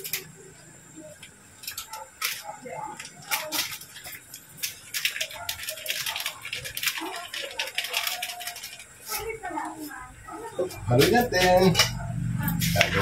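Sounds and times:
foil sachet crinkling and tearing: 1.6s - 9.6s.

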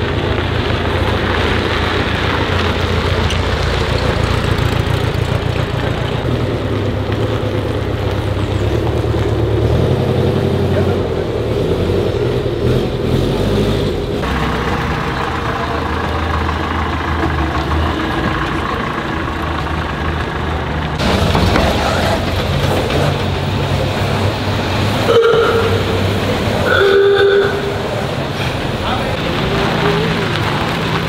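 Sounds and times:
vintage car engines idling: 0.0s - 12.6s, 13.9s - 31.0s
old truck pulling away: 0.0s - 31.0s.

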